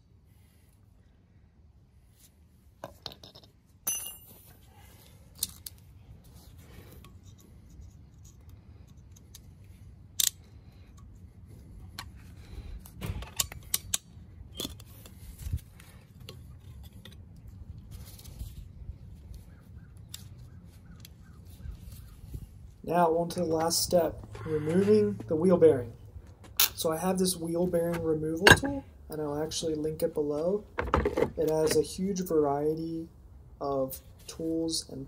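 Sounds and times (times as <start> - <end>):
ringing metal clink: 3.8 - 4.6
metallic clicks and scrapes: 5.3 - 18.6.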